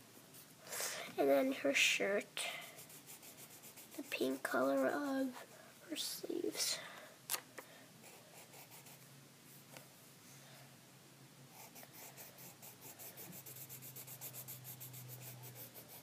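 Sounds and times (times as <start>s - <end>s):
colored pencil scratching on paper: 2.6s - 5.4s, 8.0s - 9.0s, 11.5s - 16.0s.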